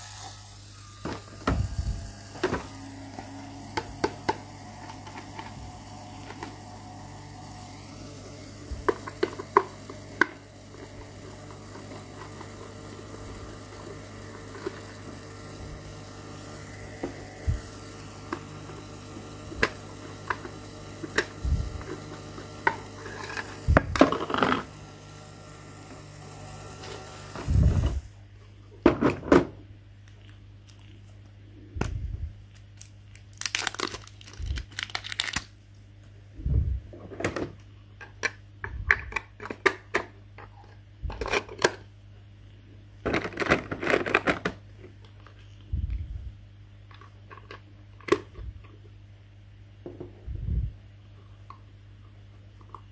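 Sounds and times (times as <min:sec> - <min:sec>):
low hum: 0:31.4 - 0:32.5, 0:36.3 - 0:37.1, 0:45.6 - 0:46.6.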